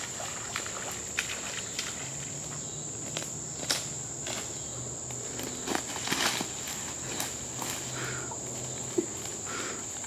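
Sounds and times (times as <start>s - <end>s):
footsteps sloshing through water: 0.0s - 3.3s
insects buzzing: 0.0s - 10.0s.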